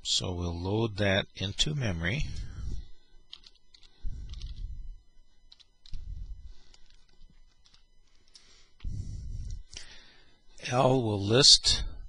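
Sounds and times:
computer keyboard typing: 3.3 - 4.7, 5.5 - 8.4
low muffled rumbles: 3.9 - 7.6, 8.4 - 10.0.

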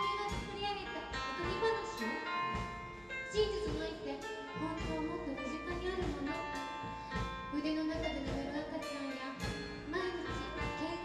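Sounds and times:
woman singing into a microphone: 0.0 - 2.4, 3.3 - 11.0
drum hits: 0.0 - 4.1, 4.8 - 8.6
live pop rock band playing: 0.0 - 11.0.

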